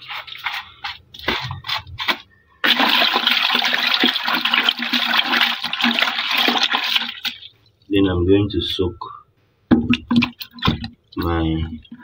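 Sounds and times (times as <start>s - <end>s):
water sloshing in a bucket: 0.0s - 7.9s, 9.7s - 12.0s.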